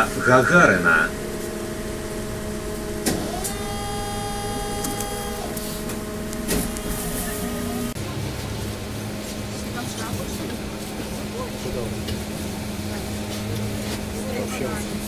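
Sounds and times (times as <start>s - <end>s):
mechanical whine: 0.0s - 8.0s
electrical hum: 0.0s - 9.7s
mechanical clunk: 3.0s - 3.6s, 4.7s - 7.0s.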